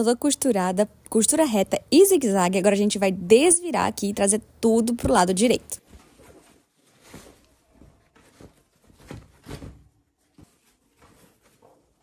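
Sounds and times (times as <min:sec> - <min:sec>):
canvas rustling: 0:05.8 - 0:12.0.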